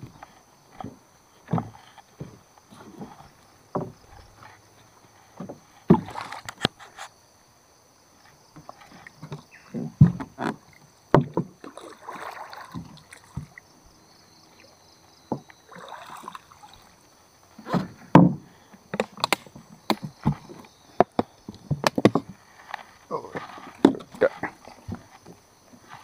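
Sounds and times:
knocks and thumps on a boat: 0.0 - 4.6, 5.3 - 6.4, 8.5 - 13.6, 15.1 - 16.3, 17.6 - 22.4, 23.3 - 26.0
water swishing: 10.2 - 13.7, 15.6 - 17.6.

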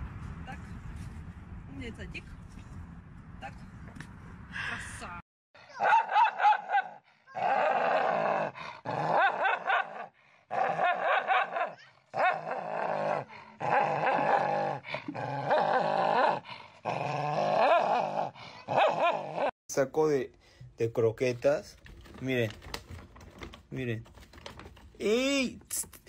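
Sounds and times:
dog growling and snarling: 7.3 - 19.5.

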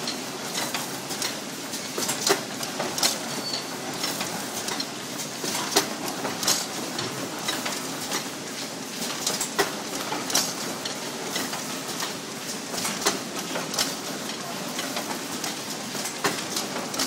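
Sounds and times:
packing machine clatter: 0.0 - 17.0.

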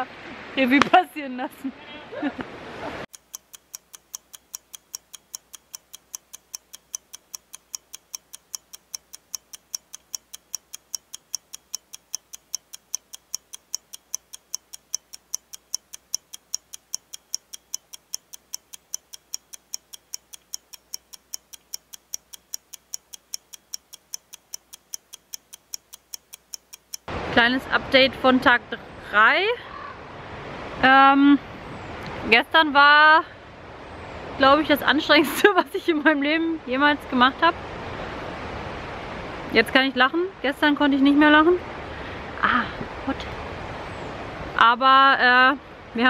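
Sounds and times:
clock ticking: 3.1 - 27.1.

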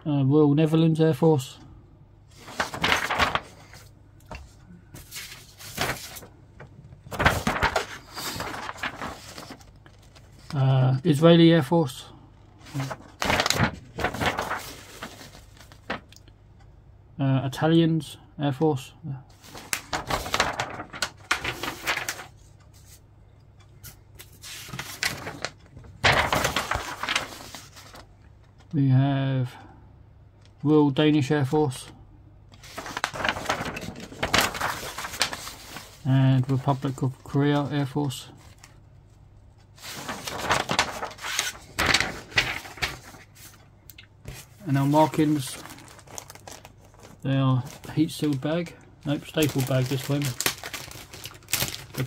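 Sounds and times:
paper pages rustling: 2.3 - 10.7, 12.4 - 16.2, 19.4 - 23.0, 23.8 - 28.7, 32.6 - 38.8, 39.6 - 43.6, 44.2 - 52.0.

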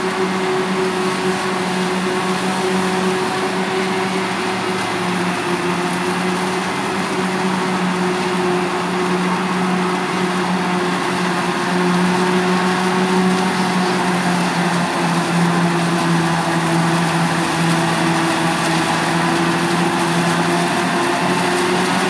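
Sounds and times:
forage harvester working: 0.0 - 22.0
tractor running: 0.0 - 22.0.

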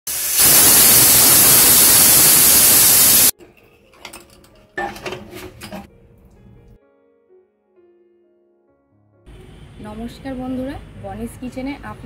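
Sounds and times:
pressure cooker hissing steam: 0.0 - 3.3.

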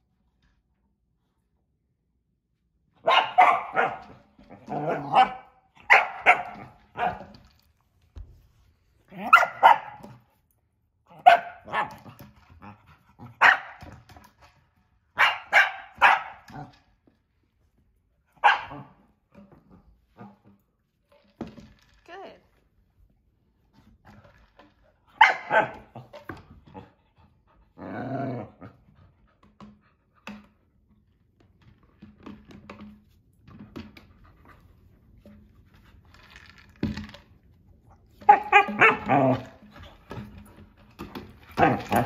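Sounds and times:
dog barking: 3.0 - 4.0, 4.9 - 7.2, 9.2 - 10.0, 11.2 - 11.9, 13.4 - 13.8, 15.2 - 16.4, 18.4 - 18.9, 25.2 - 25.8.

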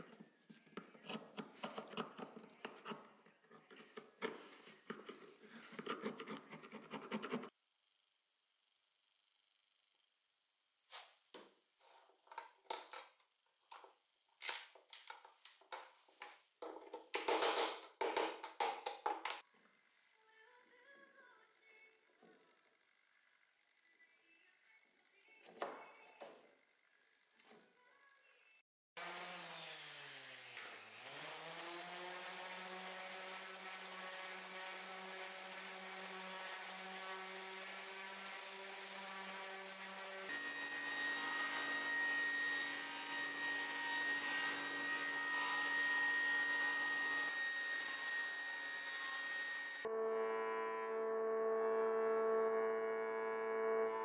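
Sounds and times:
faint music: 19.8 - 28.6
orbital sander whirring: 29.0 - 49.8
machine with high whine: 32.6 - 49.9.

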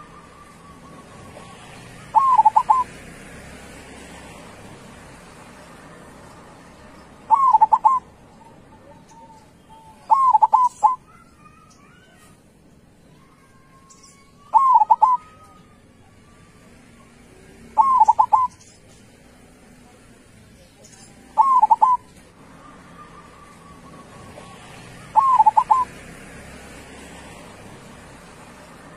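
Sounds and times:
doves cooing: 0.0 - 4.4, 7.1 - 11.1, 14.5 - 18.8, 21.3 - 28.9.

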